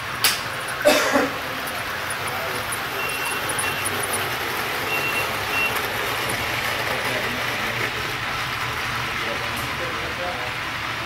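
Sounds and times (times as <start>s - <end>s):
model trains rolling: 0.0s - 11.0s
short high beeps: 3.0s - 3.9s, 4.9s - 5.8s.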